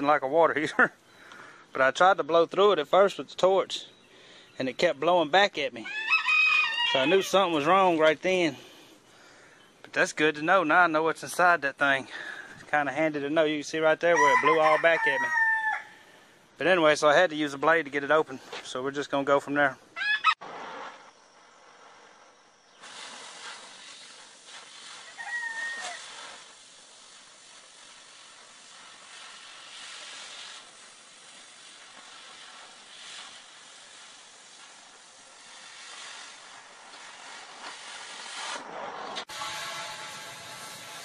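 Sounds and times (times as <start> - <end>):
cutting torch hissing: 20.8 - 41.0.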